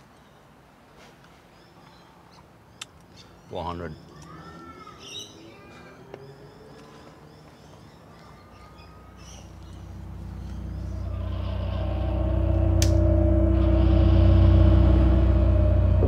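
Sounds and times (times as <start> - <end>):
low musical drone: 8.5 - 16.0.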